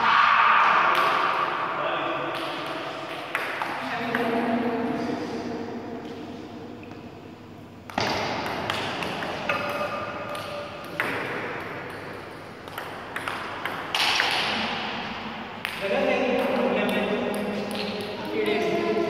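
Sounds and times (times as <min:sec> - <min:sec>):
ball clicking off paddles: 0:07.8 - 0:15.0
ball bouncing on table: 0:07.9 - 0:14.6.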